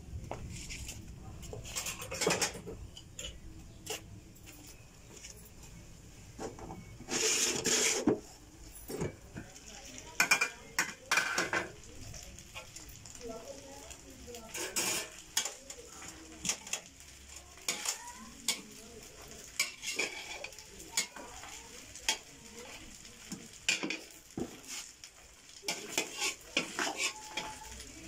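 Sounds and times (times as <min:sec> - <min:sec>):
spoon scraping metal pot: 0:07.0 - 0:08.3, 0:19.6 - 0:21.2, 0:25.7 - 0:27.8.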